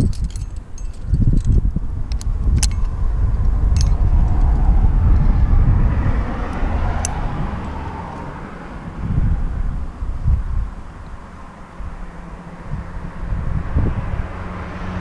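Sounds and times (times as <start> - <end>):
sharp clicks: 0.0 - 4.5
low rumble: 0.0 - 14.4
motor vehicle passing: 0.0 - 15.0.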